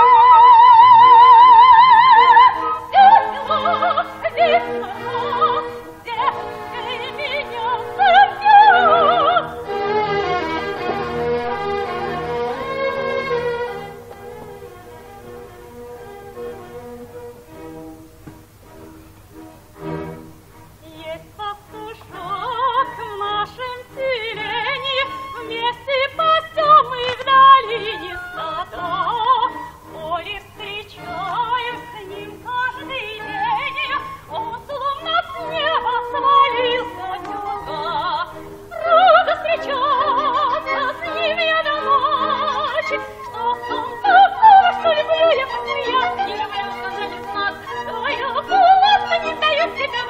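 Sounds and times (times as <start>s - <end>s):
operatic voice with vibrato: 1.0s - 9.8s, 20.9s - 50.0s
orchestra playing: 2.4s - 20.8s.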